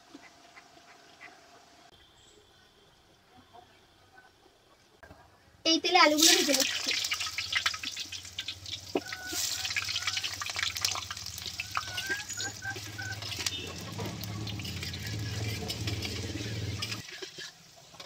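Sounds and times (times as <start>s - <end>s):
potatoes sizzling in hot oil: 6.0s - 18.0s.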